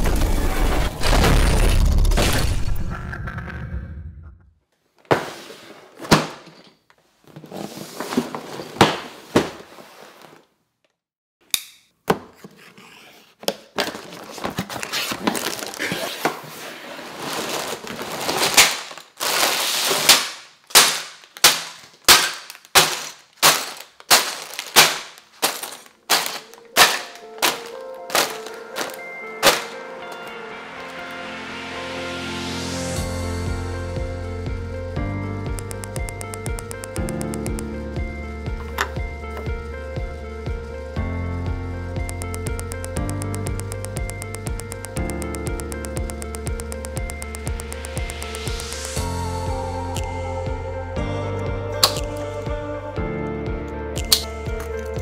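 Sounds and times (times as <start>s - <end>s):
plastic bags dropping on table: 17.3s - 29.8s.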